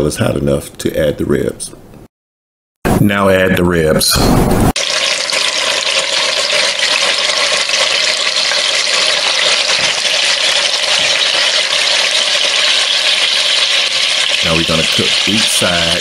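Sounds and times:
meat searing in hot oil: 4.8 - 16.0.

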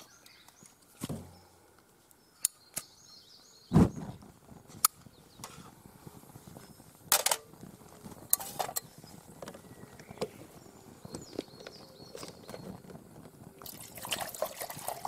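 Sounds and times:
camp stove flame: 4.3 - 15.0
metal camp gear clattering: 7.1 - 7.5, 8.3 - 9.0.

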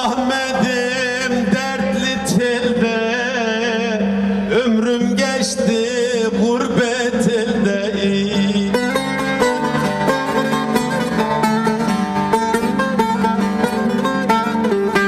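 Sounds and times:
long-necked lute picked solo: 7.1 - 15.0.

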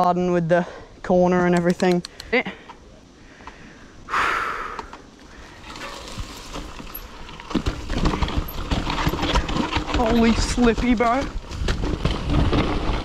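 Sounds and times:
bike tyres over rocks: 5.2 - 13.0
bike rattling and knocking: 5.5 - 13.0.

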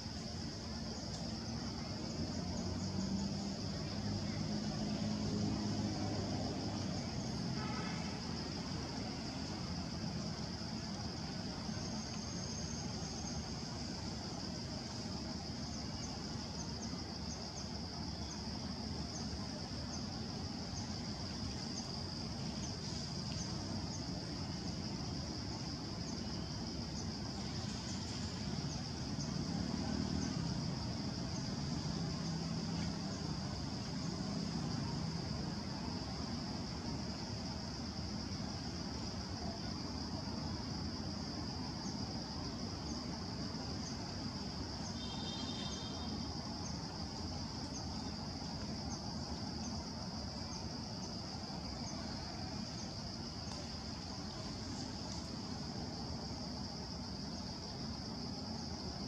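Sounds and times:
insect chorus drone: 0.0 - 59.0.

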